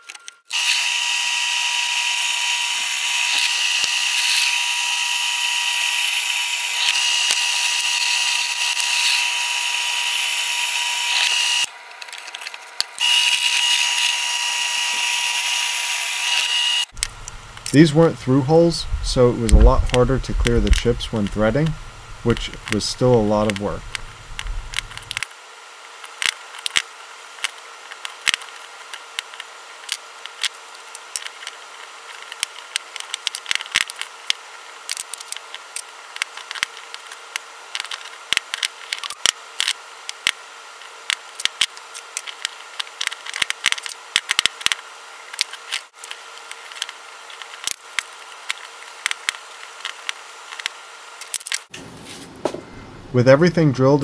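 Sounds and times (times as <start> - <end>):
faint steady hum: 16.4 - 54.0.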